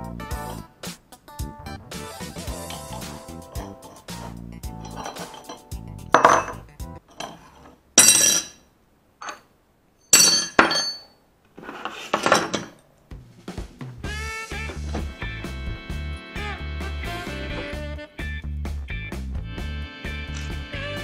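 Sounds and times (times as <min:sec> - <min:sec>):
background music: 0:00.0 - 0:07.1, 0:13.1 - 0:21.0
metal parts clanking on table: 0:04.8 - 0:08.6, 0:09.2 - 0:09.5, 0:10.1 - 0:12.8.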